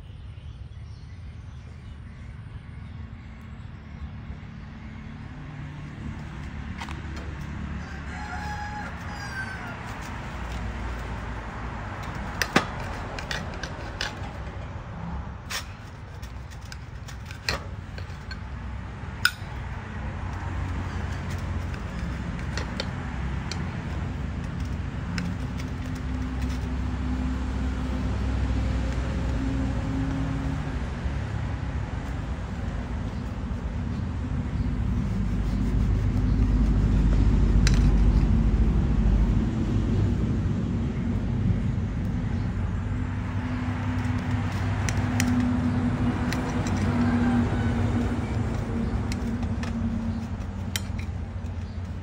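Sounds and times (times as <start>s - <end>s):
rooster crowing: 7.6s - 10.2s, 46.7s - 48.3s.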